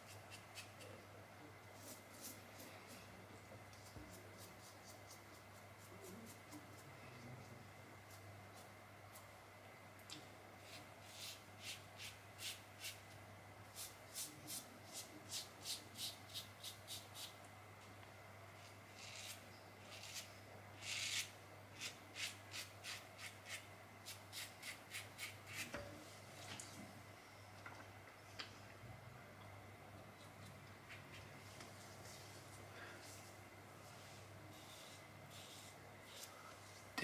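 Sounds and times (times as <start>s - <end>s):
razor scraping stubble: 18.9s - 25.7s.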